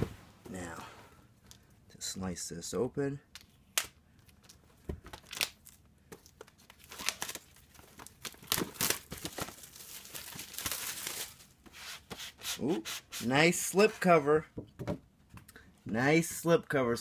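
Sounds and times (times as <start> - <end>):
plastic crinkling: 4.2 - 11.5
plastic shrink wrap tearing: 6.6 - 11.4.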